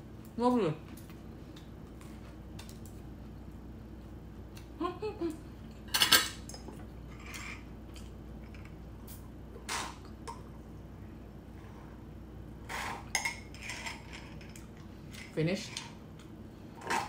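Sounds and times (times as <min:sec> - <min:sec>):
person humming while chewing: 0:04.5 - 0:05.6.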